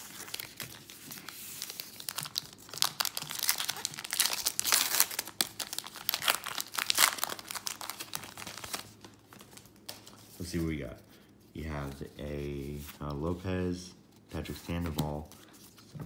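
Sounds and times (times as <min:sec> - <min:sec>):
plastic wrapper tearing and crinkling: 0:00.0 - 0:10.0.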